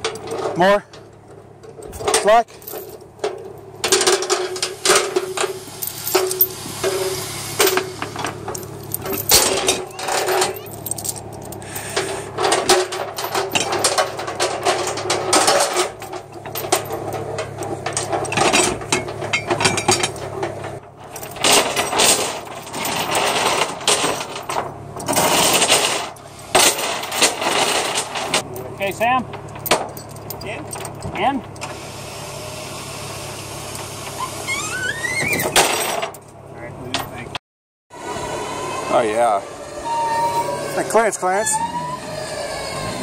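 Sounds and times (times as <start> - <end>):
chain links clinking: 1.9 - 31.6.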